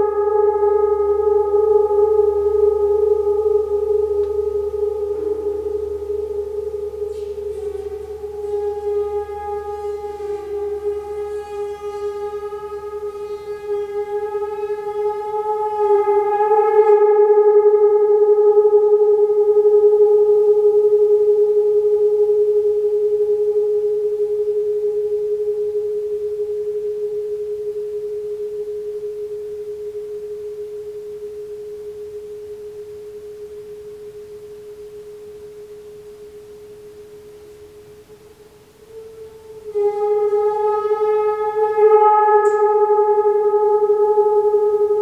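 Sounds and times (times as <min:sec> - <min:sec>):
sustained ringing tone: 0:00.0 - 0:45.0.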